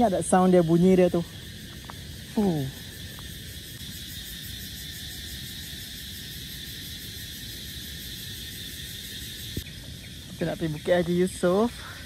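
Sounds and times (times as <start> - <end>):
fast pulsing insect calls: 0.0 - 12.0
insects buzzing: 0.0 - 12.0.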